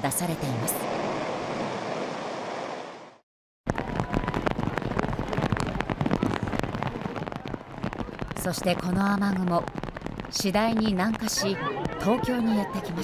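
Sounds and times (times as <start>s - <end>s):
downpour rushing: 0.7s - 13.0s
heavy rain splashing on pavement: 3.7s - 13.0s.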